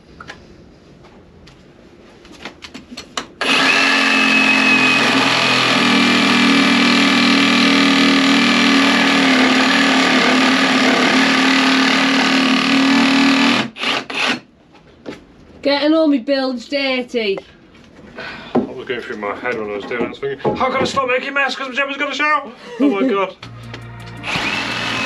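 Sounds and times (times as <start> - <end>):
reciprocating saw cutting wood: 3.4 - 14.4, 24.2 - 25.0.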